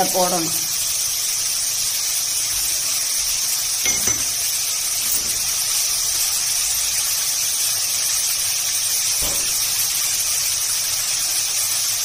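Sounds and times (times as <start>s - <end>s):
onions sizzling in hot oil: 0.0s - 12.0s
light clinks: 3.8s - 5.5s.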